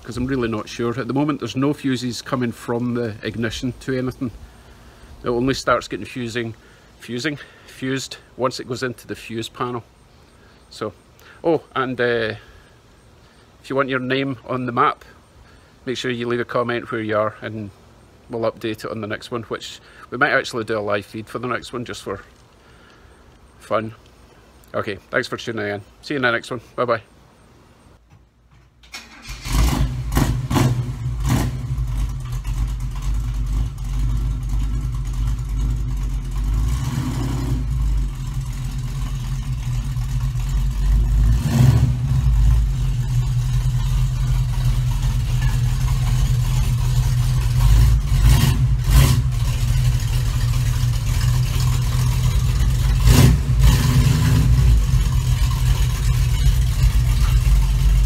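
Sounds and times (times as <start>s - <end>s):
car engine running at low revs: 29.5s - 58.0s.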